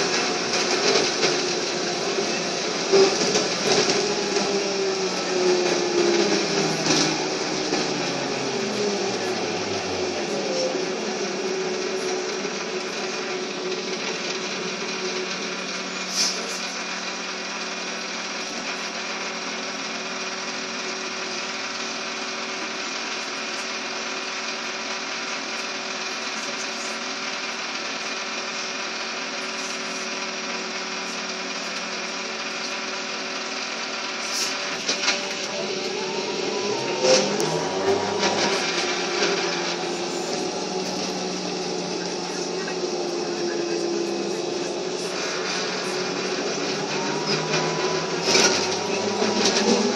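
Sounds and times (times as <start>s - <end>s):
motor whine rising in pitch: 1.2s - 15.6s, 34.8s - 49.9s.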